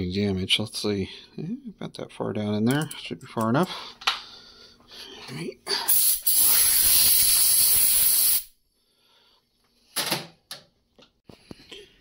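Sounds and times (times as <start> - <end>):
compressed air hissing: 5.9 - 8.6.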